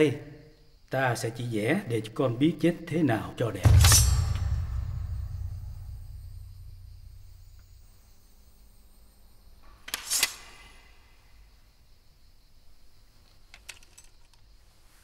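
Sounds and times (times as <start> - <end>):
faint metallic ring: 3.7 - 7.8
sword sliding against scabbard: 9.9 - 10.6.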